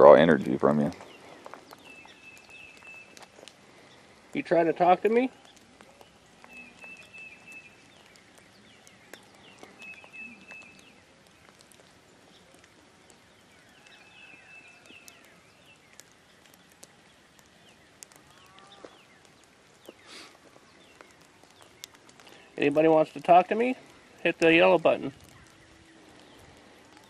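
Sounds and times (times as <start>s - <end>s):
bird chirps: 0.9s - 4.1s, 5.3s - 22.7s, 24.4s - 27.0s
whistled bird notes: 1.8s - 3.2s, 5.4s - 11.0s, 13.5s - 15.8s
faint ticks: 5.4s - 22.4s.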